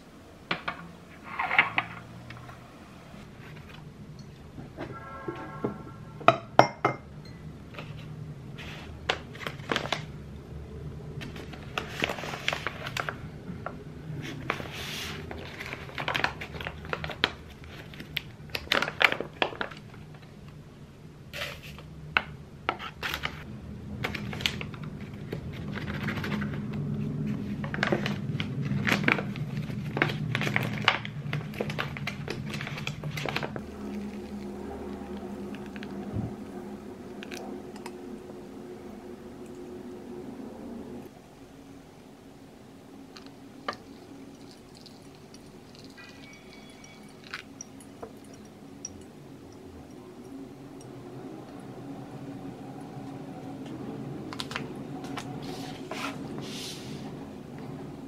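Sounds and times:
ceramic and glass clinking: 6.3 - 7.4, 43.7 - 50.4
paper rustling and crinkling: 7.8 - 10.1, 11.2 - 13.2, 14.2 - 20.1, 22.8 - 36.0
steady low hum: 23.4 - 58.0.

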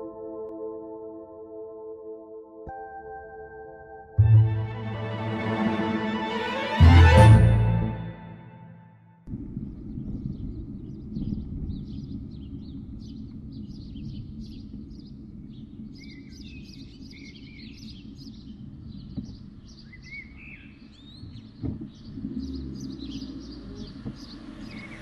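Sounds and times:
steady low rumble: 9.3 - 16.2
small birds chirping: 9.9 - 25.0.

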